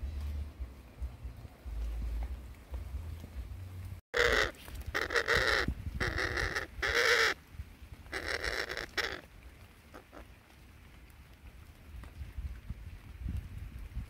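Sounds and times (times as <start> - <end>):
parrots squawking: 4.2 - 7.4, 8.1 - 9.2.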